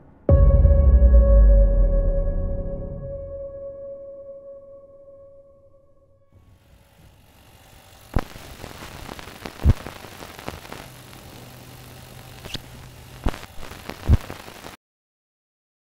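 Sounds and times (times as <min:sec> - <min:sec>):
camera microphone hiss: 0:06.5 - 0:14.8.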